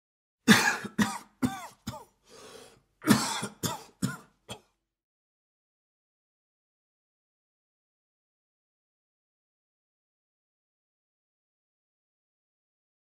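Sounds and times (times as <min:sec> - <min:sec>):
man coughing: 0:00.5 - 0:02.2, 0:03.0 - 0:04.7
breath drawn in: 0:02.2 - 0:02.8.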